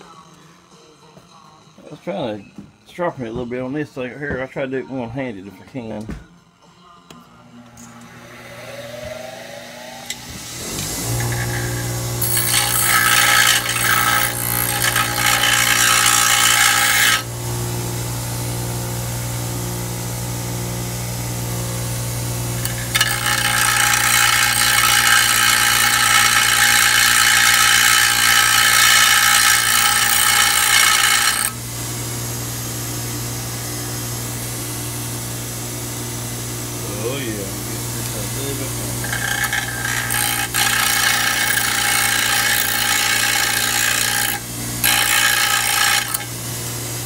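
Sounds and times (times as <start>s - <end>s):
bench grinder motor humming: 8.0s - 17.8s, 22.2s - 32.3s, 36.8s - 47.0s
drill bit grinding on wheel: 10.8s - 17.3s, 22.6s - 31.6s, 38.0s - 46.4s.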